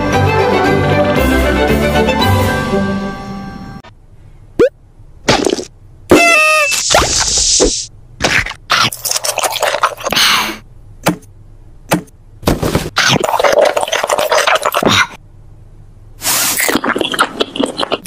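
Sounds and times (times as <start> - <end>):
cartoon crunching and munching: 8.2 - 10.2, 12.9 - 15.2, 16.3 - 18.0.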